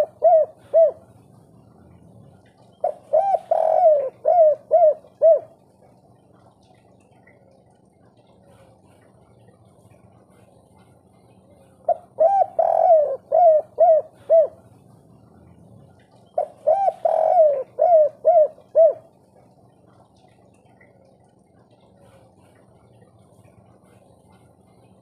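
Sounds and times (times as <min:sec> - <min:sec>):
dove cooing: 0:00.0 - 0:06.0, 0:11.8 - 0:20.0.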